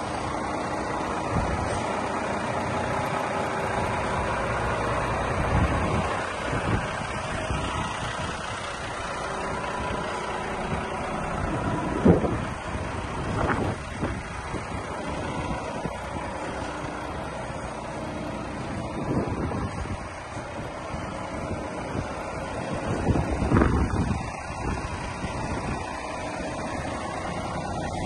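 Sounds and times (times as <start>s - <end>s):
diesel truck engine idling: 0.0s - 28.0s.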